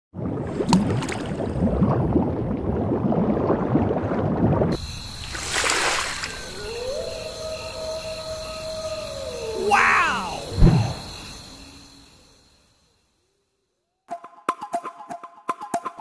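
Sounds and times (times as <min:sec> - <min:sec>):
cartoon underwater bubbling: 0:00.2 - 0:04.7.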